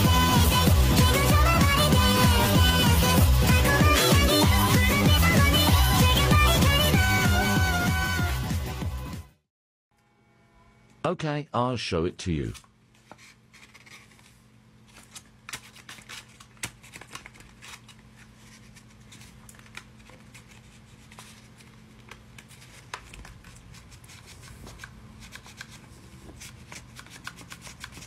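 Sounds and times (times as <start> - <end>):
paper clicks and rustles: 12.5 - 28.0.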